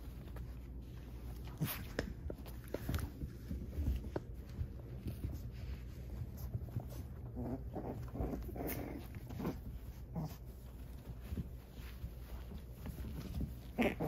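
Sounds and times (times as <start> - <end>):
puppies growling and yipping: 6.5 - 14.0.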